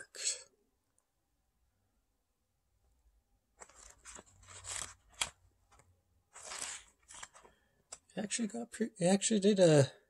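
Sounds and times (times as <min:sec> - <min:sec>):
pages flipping: 0:03.6 - 0:08.1.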